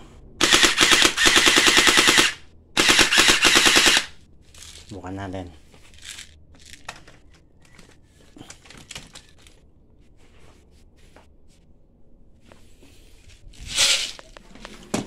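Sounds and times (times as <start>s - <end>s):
plastic packaging crinkling: 4.5s - 5.0s, 5.9s - 7.0s.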